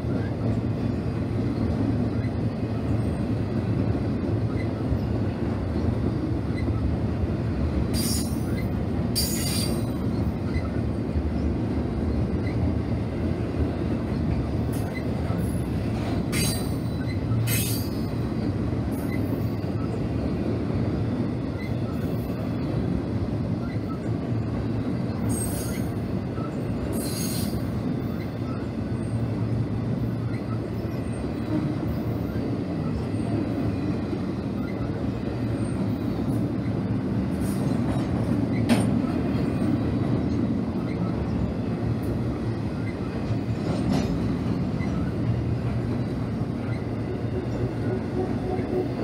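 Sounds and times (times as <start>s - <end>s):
train wheels rumbling on rails: 0.0s - 49.0s
wheel squeals: 34.6s - 36.0s.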